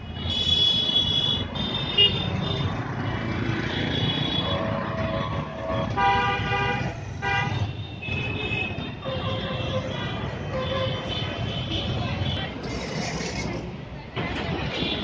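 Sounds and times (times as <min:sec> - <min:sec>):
traffic engines rumbling: 0:00.0 - 0:15.0
vehicle horns honking: 0:00.2 - 0:02.7, 0:03.9 - 0:12.5.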